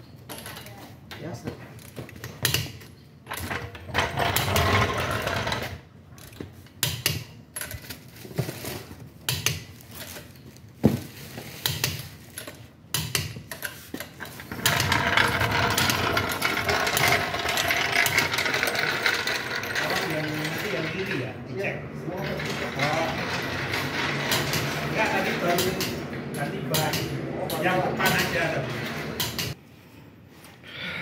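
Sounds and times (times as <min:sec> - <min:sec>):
continuous metal rattle: 0:13.4 - 0:29.6.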